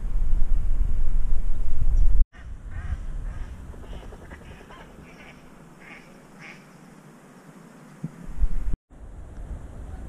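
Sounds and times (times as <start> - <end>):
low rumble of wind or water: 0.0 - 6.4, 8.0 - 10.0
waterbirds calling: 2.7 - 8.2.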